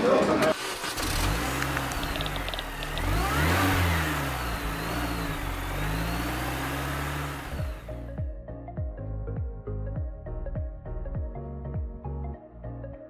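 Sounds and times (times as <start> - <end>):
car engine revving: 0.5 - 8.1.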